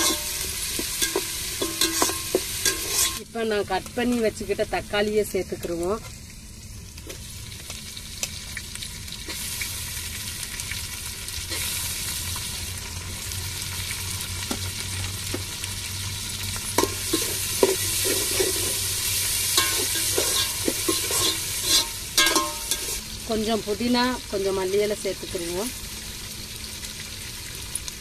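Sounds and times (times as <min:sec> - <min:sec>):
ladle scraping and clinking pot: 0:00.0 - 0:03.2, 0:16.8 - 0:23.0
tomatoes sizzling in a pot: 0:00.0 - 0:28.0.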